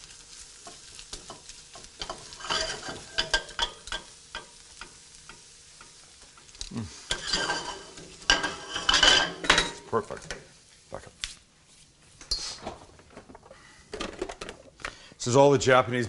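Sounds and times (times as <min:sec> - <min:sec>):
greens sizzling in oil: 0:00.0 - 0:11.5
metal tongs clicking on pan: 0:00.6 - 0:07.3.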